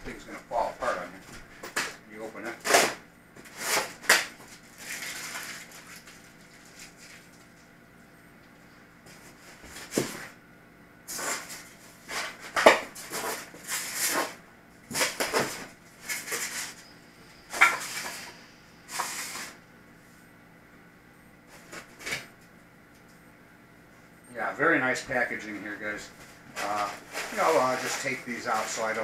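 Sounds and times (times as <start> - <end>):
plastic wrap crinkling: 3.5 - 7.7, 26.3 - 29.0.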